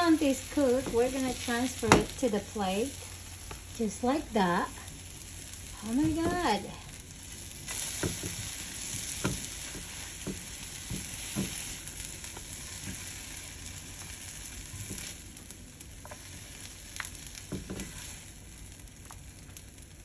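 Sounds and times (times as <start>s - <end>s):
omelette sizzling in a frying pan: 0.0s - 20.0s
spatula scraping and knocking pan: 0.2s - 2.3s, 7.7s - 15.2s, 17.4s - 18.2s.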